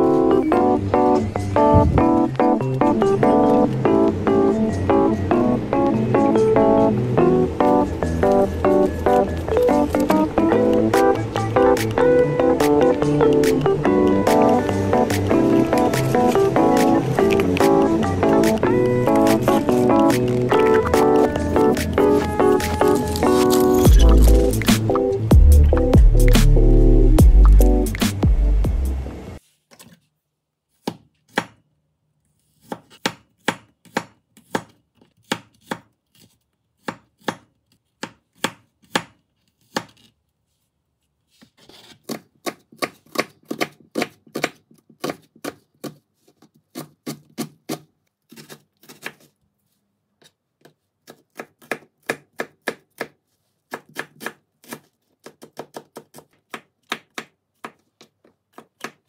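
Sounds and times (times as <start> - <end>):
knife chopping on cutting board: 1.7 - 2.1, 32.6 - 35.9, 36.8 - 40.1, 51.0 - 57.8.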